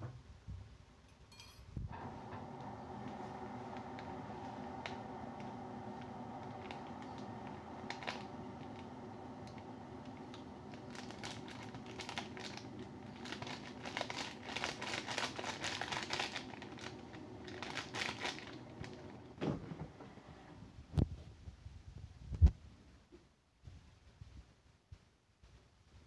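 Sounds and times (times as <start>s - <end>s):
steady low hum: 1.9s - 20.8s
paper pouch crinkling: 2.0s - 19.3s.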